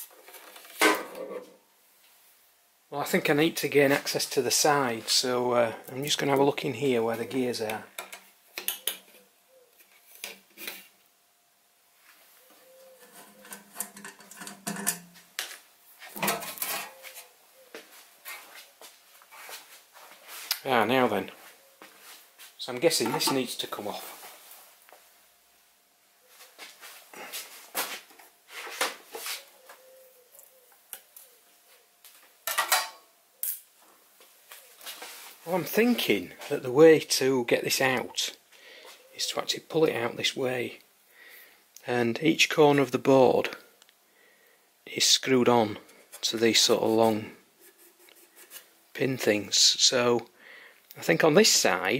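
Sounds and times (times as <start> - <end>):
metal cover clicks and knocks: 13.4 - 15.1.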